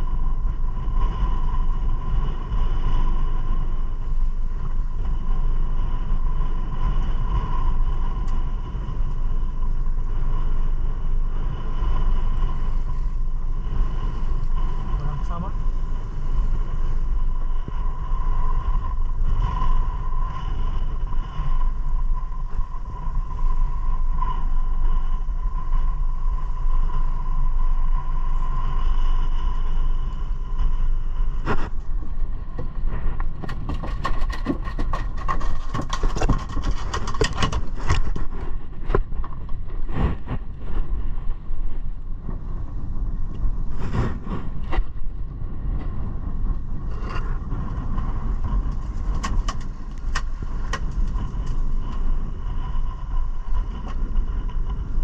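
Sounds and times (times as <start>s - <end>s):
outboard motor running: 0.0s - 41.0s
wind: 0.0s - 55.0s
gear knocking and clattering: 32.6s - 38.3s.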